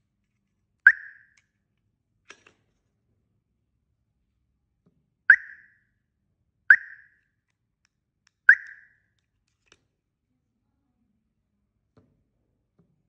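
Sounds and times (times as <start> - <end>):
alarm siren chirps: 0.9 - 1.4, 5.3 - 5.8, 6.7 - 7.2, 8.5 - 9.0.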